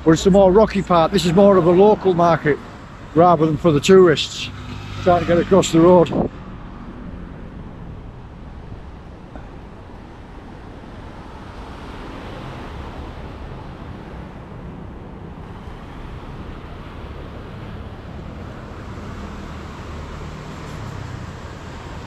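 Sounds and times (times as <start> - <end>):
steady low rumble: 6.1 - 11.5
ocean surf washing in: 6.6 - 22.0.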